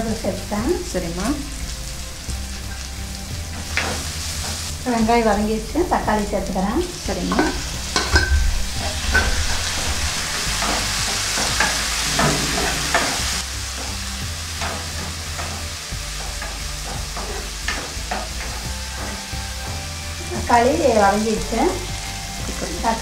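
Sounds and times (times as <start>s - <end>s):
vegetables sizzling in oil: 0.0s - 23.0s
ladle scraping and tapping pan: 7.3s - 13.4s.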